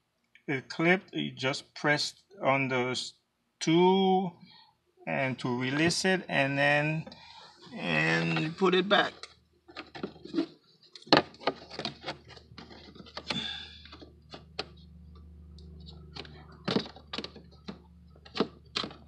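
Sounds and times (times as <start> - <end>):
plastic clicks and knocks: 9.2 - 19.0
low steady hum: 11.2 - 19.0.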